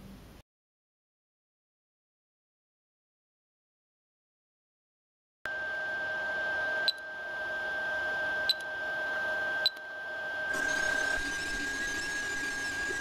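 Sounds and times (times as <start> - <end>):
printer fan hum with high whine: 5.5 - 13.0
hissy printer whir: 6.3 - 13.0.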